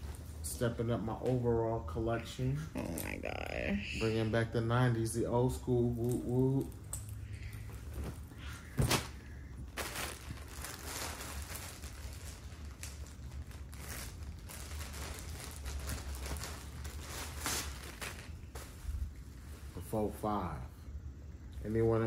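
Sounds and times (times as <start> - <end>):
clothing rustling: 6.0 - 19.9
plastic bag crinkling: 8.1 - 19.2.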